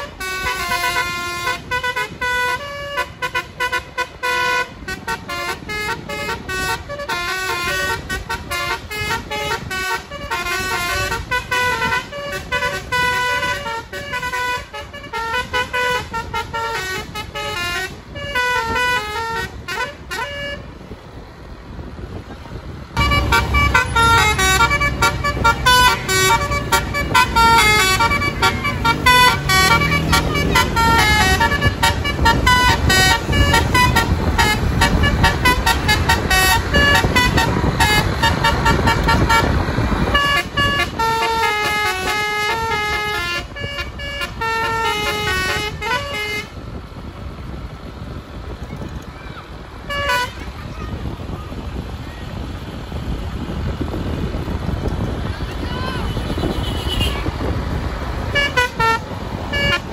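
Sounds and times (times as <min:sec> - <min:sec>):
musical horn playing tune: 0:00.0 - 0:20.7, 0:23.0 - 0:46.6, 0:49.8 - 0:50.6, 0:58.2 - 0:59.9
low engine rumble: 0:00.0 - 0:59.9.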